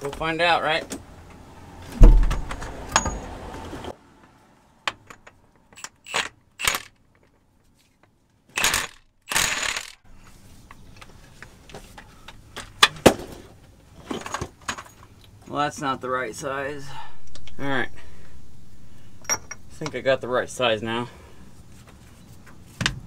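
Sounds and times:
heavy knock: 2.0s - 2.7s
impact wrench bursts: 8.6s - 10.0s
metallic clinks: 19.2s - 19.8s.

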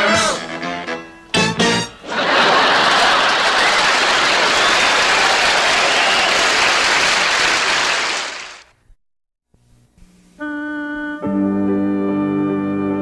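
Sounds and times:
studio audience applause: 2.1s - 8.7s
music with held chord: 10.4s - 13.0s.

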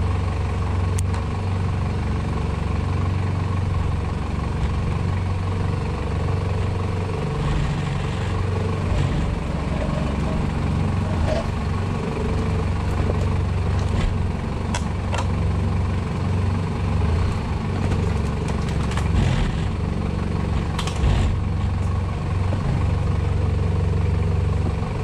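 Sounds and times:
off-road vehicle engine at low revs: 0.0s - 25.0s
stones and suspension knocking: 17.7s - 19.8s.

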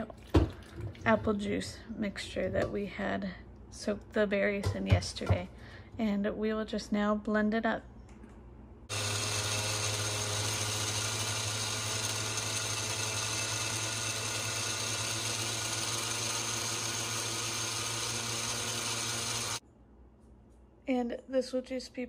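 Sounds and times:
blender running: 8.9s - 19.6s.

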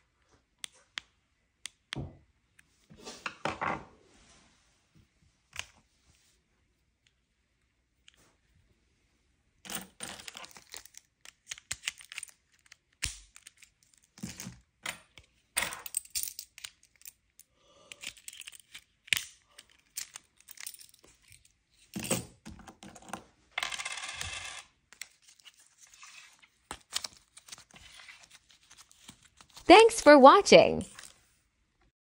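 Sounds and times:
metal keys rattling: 15.8s - 17.2s, 19.6s - 22.2s.

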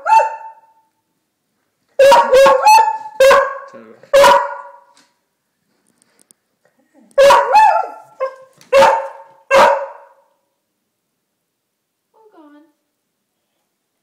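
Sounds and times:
dog barking: 0.0s - 0.9s, 2.0s - 5.0s, 7.2s - 10.3s.

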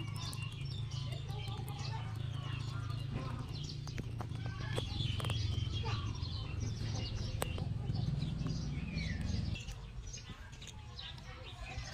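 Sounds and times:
small birds chirping: 0.0s - 11.9s.

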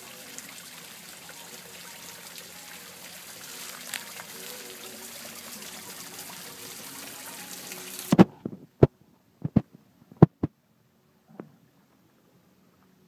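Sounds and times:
waterfall trickling and splashing: 0.0s - 8.3s.

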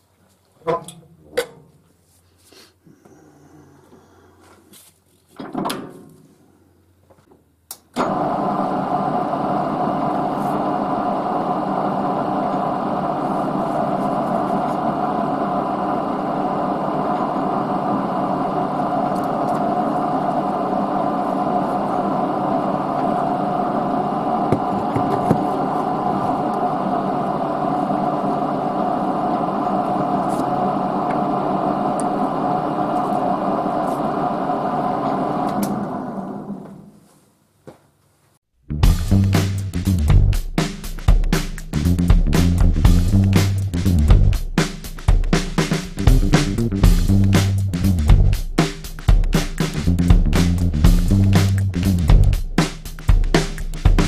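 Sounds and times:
lathe motor humming and whining: 8.1s - 36.8s.

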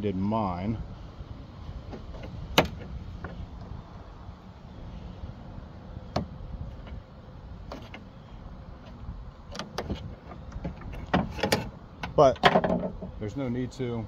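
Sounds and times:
steady low rumble: 0.0s - 12.1s
plastic and metal latch clicks: 9.5s - 13.0s.

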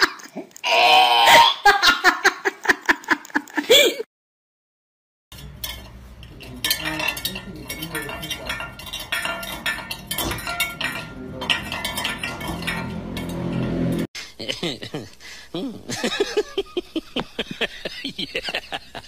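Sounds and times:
metal bowl clanking on concrete: 5.3s - 14.1s.

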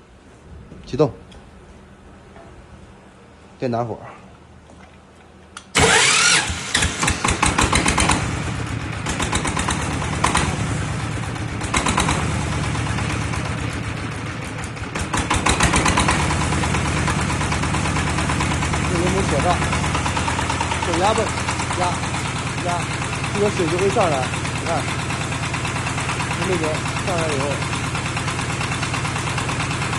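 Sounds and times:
starter motor whine: 5.6s - 10.7s, 14.1s - 29.9s
diesel engine knocking: 7.1s - 29.9s.

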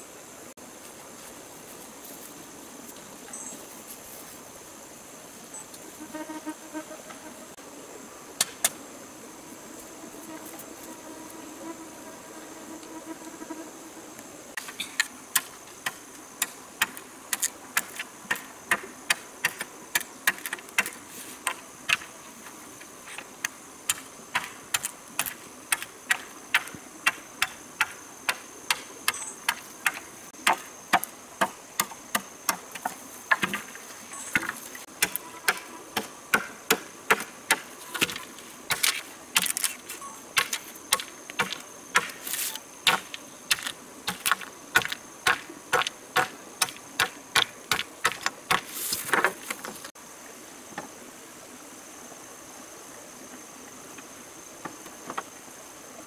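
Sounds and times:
high insect drone: 0.0s - 56.0s
blade chopping bamboo: 15.0s - 22.1s, 23.9s - 33.7s, 34.4s - 39.8s, 40.4s - 49.7s.

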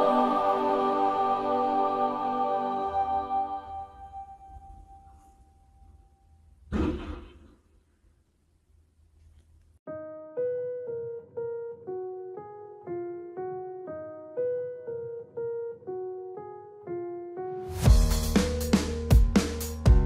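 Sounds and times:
piano-like keyboard notes: 0.0s - 5.8s, 9.8s - 20.0s.

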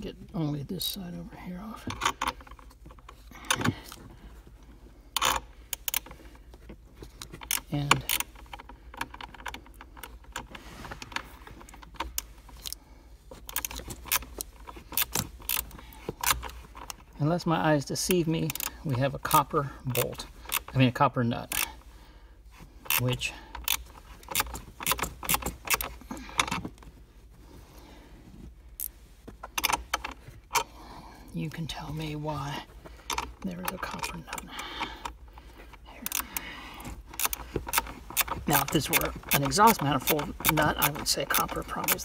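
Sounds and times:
rustling: 0.0s - 42.0s
metallic clicks of hand tools: 5.2s - 6.1s, 22.8s - 26.7s, 36.0s - 36.5s, 37.1s - 42.0s.

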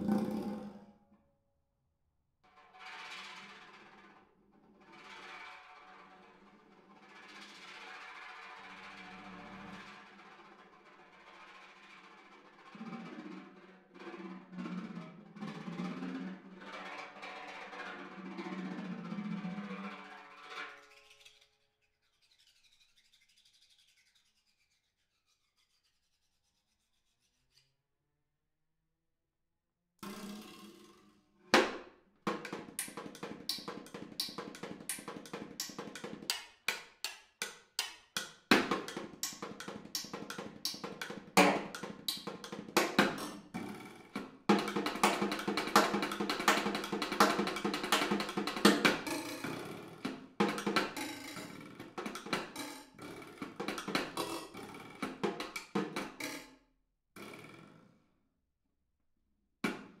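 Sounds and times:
snare drum solo: 38.5s - 43.4s, 44.5s - 52.6s.

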